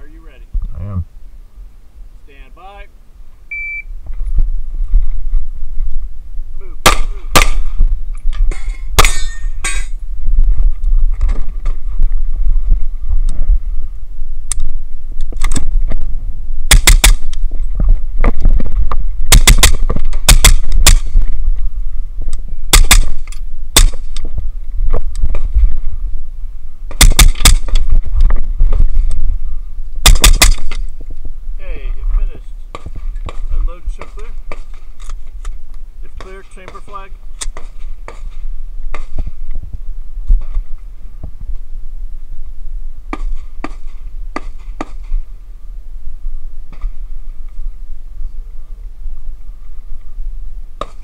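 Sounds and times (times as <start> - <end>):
steady low rumble: 0.0 - 51.0
shot timer beep: 3.5 - 3.9
suppressed rifle firing: 6.8 - 7.8, 9.0 - 9.9, 16.6 - 17.4, 19.3 - 21.2, 22.7 - 24.2, 26.9 - 27.9, 30.0 - 30.8
steel targets clanging: 8.5 - 10.0.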